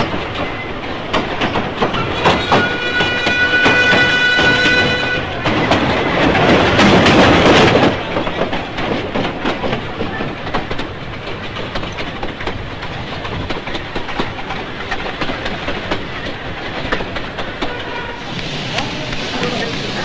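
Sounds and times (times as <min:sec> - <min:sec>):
carriages rattling: 0:00.0 - 0:20.0
continuous train rumble: 0:00.0 - 0:20.0
train wheels clicking over rail joints: 0:00.0 - 0:20.0.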